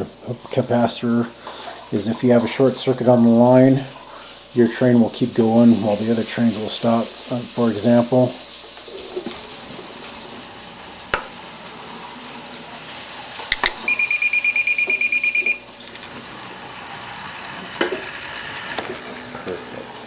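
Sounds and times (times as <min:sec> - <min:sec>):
faint steady hiss: 0:00.0 - 0:20.0
rapid high alarm beeps: 0:13.8 - 0:15.7.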